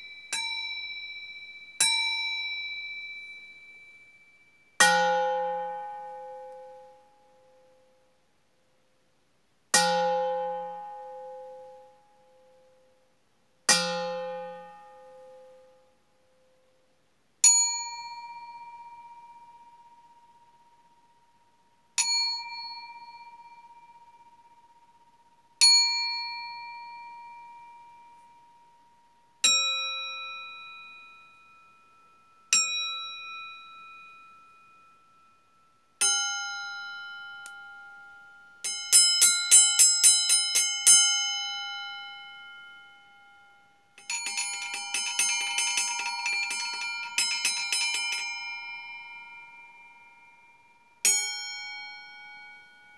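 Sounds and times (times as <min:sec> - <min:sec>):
steel bowls ringing when struck: 0:35.6 - 0:52.9.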